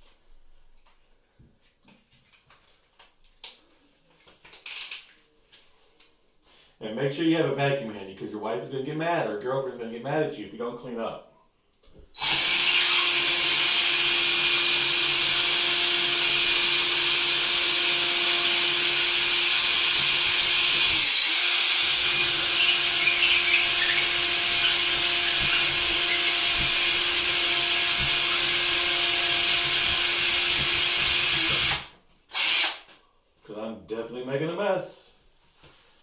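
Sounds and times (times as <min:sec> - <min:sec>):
cordless drill boring drywall: 0:12.2 - 0:32.9.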